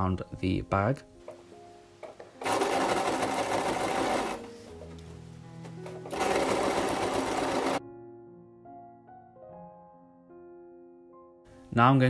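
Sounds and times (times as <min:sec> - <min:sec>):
soft piano background music: 0:00.0 - 0:12.0
sewing machine stitching: 0:02.0 - 0:04.5, 0:05.8 - 0:07.8.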